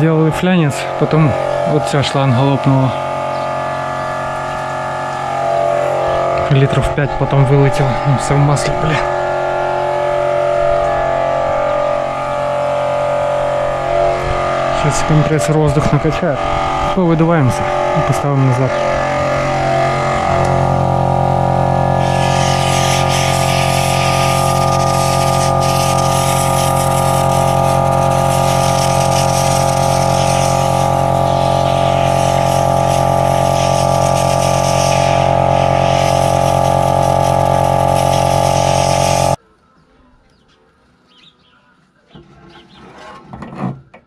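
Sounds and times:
air compressor humming: 0.0 - 39.4
compressed air blow gun hissing: 18.8 - 39.4.

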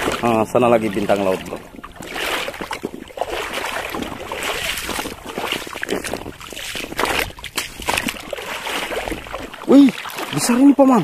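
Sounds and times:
seawater splashing from wading: 0.0 - 11.0.

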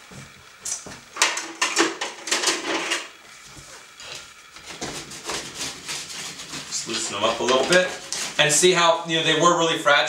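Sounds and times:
scraping on metal baking sheet: 4.6 - 8.8.

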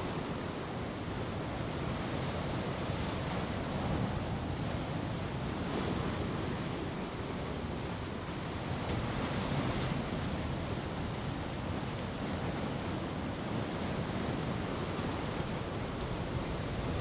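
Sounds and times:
rushing water: 0.0 - 17.0.

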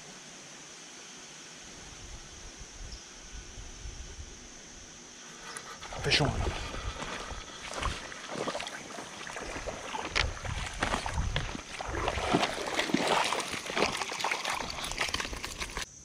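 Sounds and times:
creek water splashing: 5.3 - 15.9.

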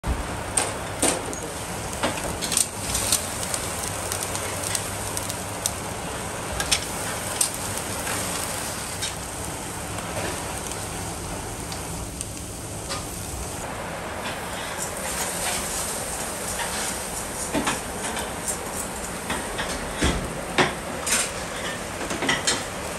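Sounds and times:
sharp crackles and pops: 0.1 - 13.7
meat sizzling on a grill: 0.1 - 22.9.

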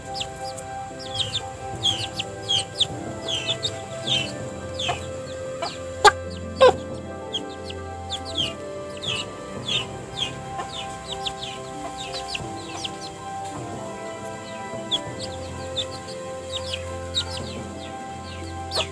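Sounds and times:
chick peeping: 0.0 - 13.6, 14.8 - 18.9.

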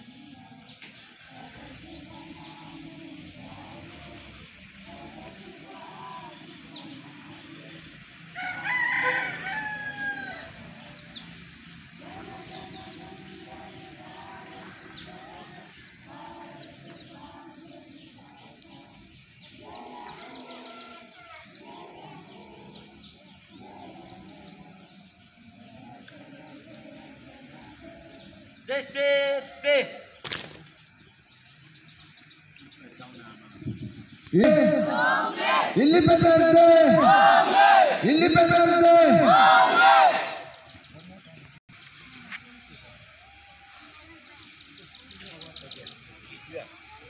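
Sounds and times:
outdoor background: 0.0 - 47.0
rooster crowing: 8.3 - 11.0.

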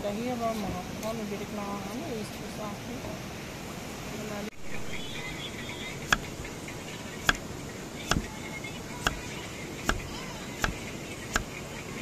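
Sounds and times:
knife chopping on wooden block: 6.1 - 6.3, 7.2 - 7.4, 9.0 - 9.2, 9.9 - 10.8.

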